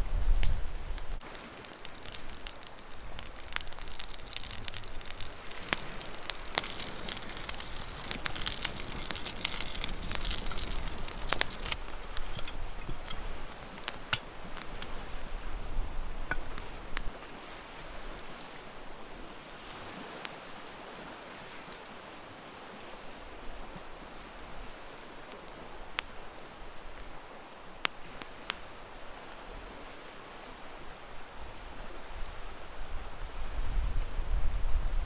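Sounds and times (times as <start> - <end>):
campfire crackling and popping: 0.3 - 22.1, 25.0 - 30.3
hissing in hot pan: 1.2 - 14.8.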